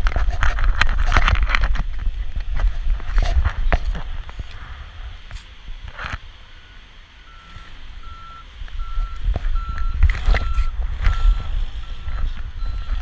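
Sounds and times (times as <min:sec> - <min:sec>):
camera rubbing and rumbling: 0:00.0 - 0:06.4, 0:08.6 - 0:13.0
vehicle reversing alarm beeping: 0:06.4 - 0:13.0.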